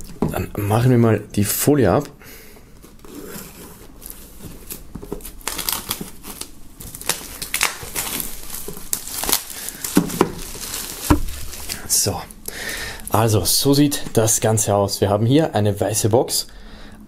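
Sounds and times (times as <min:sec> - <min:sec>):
plastic film crinkling: 0:02.9 - 0:12.6
knife slitting plastic film: 0:04.6 - 0:11.8.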